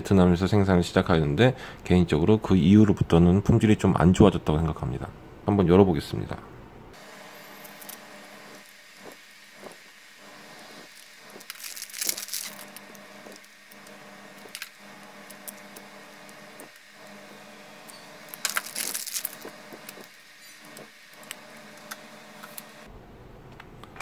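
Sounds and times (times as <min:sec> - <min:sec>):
noisy bursts: 0:06.7 - 0:23.2
plastic cases clicking and scraping: 0:10.8 - 0:16.7.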